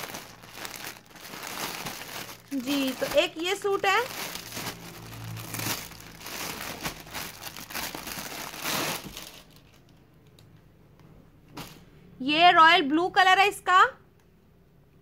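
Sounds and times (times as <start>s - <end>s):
plastic bag crinkling: 0.0s - 9.9s.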